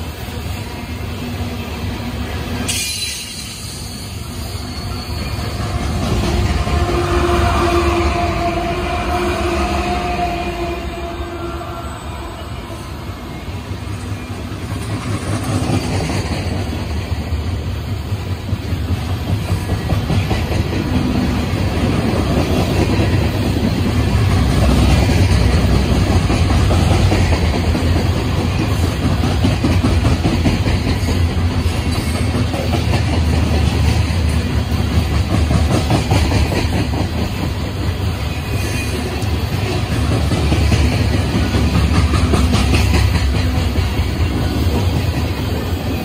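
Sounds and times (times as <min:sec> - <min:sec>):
train wheels rumbling on rail: 0:00.0 - 0:46.0
clickety-clack of rail joints: 0:13.8 - 0:46.0.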